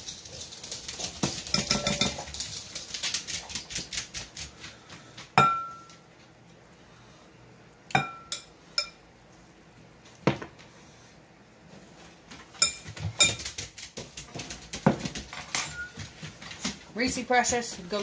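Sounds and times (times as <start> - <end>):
utensil clinking on glass bowl: 1.4 - 2.5, 8.0 - 9.0, 12.6 - 13.5.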